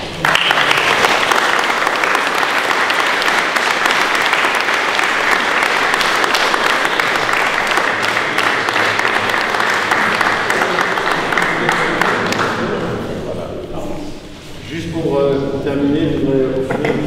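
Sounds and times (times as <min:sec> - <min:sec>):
people applauding: 0:00.0 - 0:12.9.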